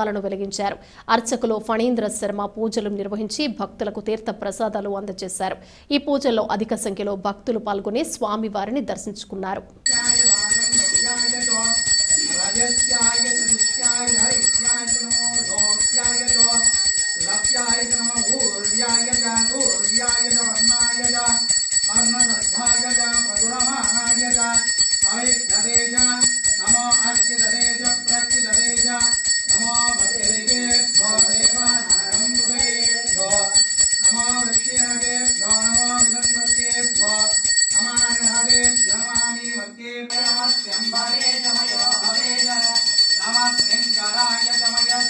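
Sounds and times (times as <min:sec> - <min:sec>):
hand bell jangling: 0:09.9 - 0:45.0
person chanting: 0:09.9 - 0:45.0.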